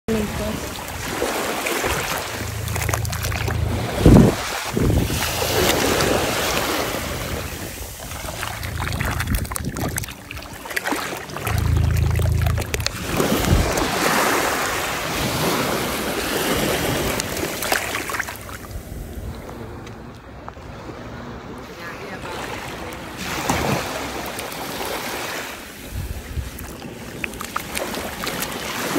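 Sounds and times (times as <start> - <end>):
wind rumbling on microphone: 0.1 - 21.2, 25.8 - 28.9
seawater sloshing over sand: 0.1 - 28.9.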